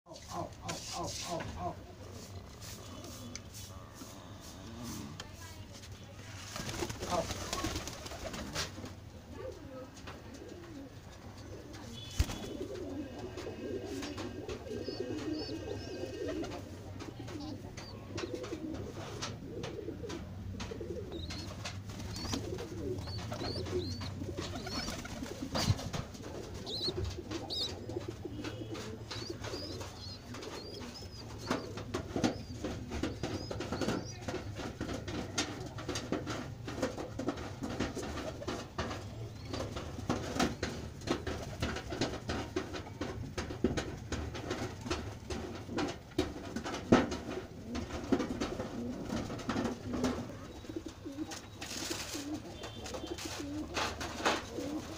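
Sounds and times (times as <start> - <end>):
pigeons cooing: 9.3 - 43.1, 46.6 - 54.9.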